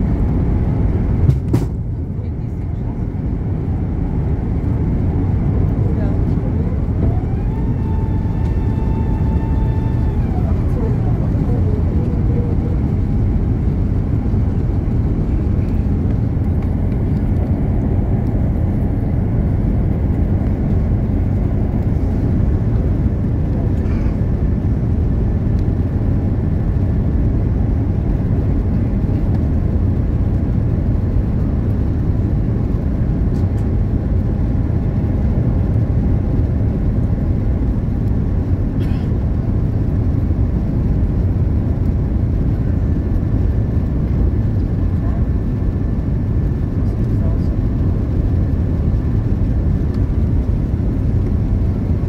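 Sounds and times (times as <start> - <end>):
airliner cabin rumble: 0.0 - 52.0.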